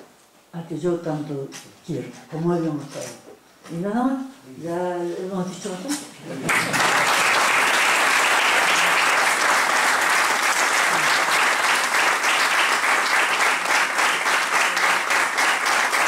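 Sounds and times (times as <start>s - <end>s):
audience applauding: 6.4s - 16.0s.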